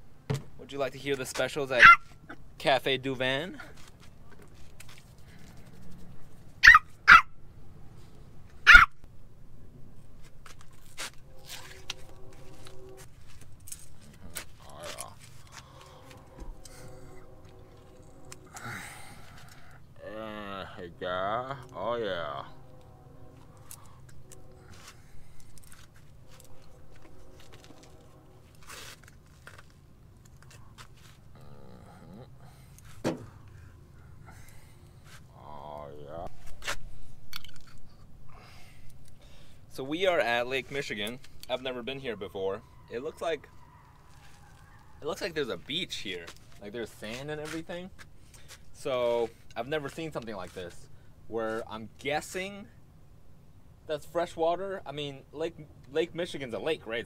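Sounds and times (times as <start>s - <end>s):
puppy barking: 1.8s - 2.1s, 6.6s - 7.4s, 8.6s - 9.0s.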